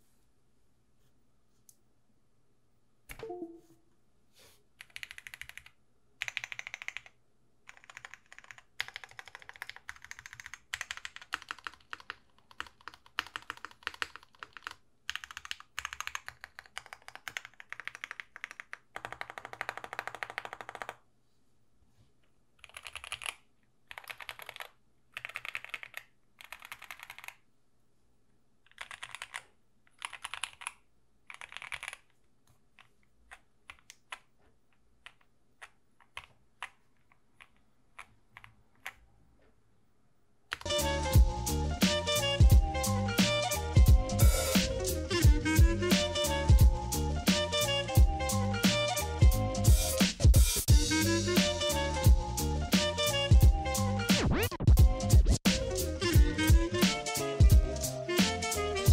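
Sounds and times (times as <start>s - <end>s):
mechanical keyboard typing: 4.8s - 21.0s, 22.6s - 27.4s, 28.7s - 32.2s, 32.8s - 34.3s, 35.0s - 39.0s.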